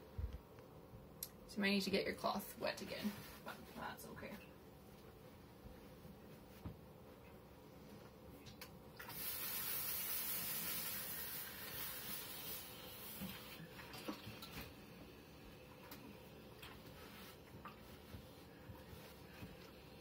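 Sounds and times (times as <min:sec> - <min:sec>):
steam iron hissing: 0:09.1 - 0:13.6.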